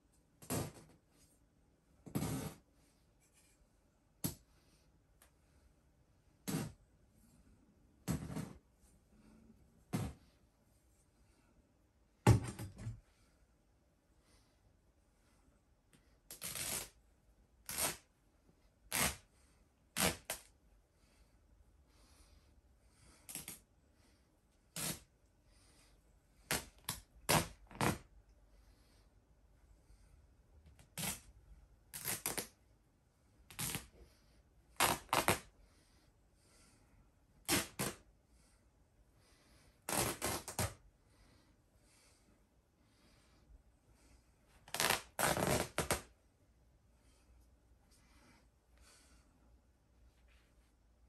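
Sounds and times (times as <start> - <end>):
plush toy fabric tearing: 0.4 - 1.0, 2.1 - 2.6, 6.4 - 6.8, 16.3 - 17.0, 17.6 - 18.1, 18.9 - 19.3, 19.9 - 20.5, 23.3 - 23.6, 24.7 - 25.1, 26.5 - 28.1, 30.8 - 31.3, 31.9 - 32.6, 33.5 - 33.9, 34.8 - 35.5, 37.4 - 38.0, 39.9 - 40.8, 44.6 - 46.1.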